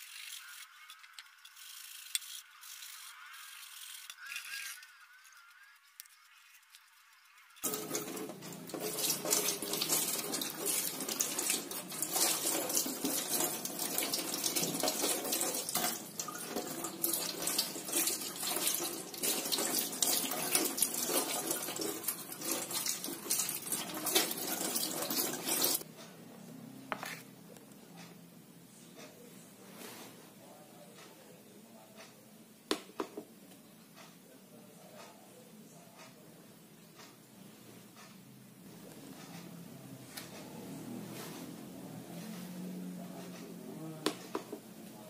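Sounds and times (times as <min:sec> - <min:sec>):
tap water running into sink: 0:07.6 - 0:25.8
water splashing on cutting board: 0:07.6 - 0:25.8.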